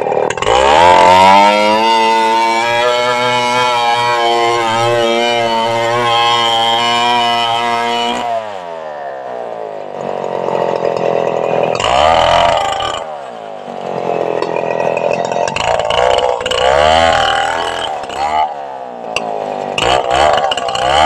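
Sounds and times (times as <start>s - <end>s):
chainsaw engine revving and idling: 0.0s - 21.0s.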